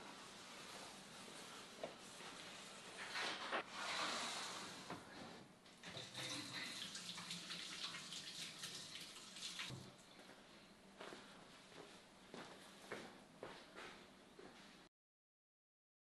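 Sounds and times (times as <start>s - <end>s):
faucet running into sink: 5.8s - 9.8s.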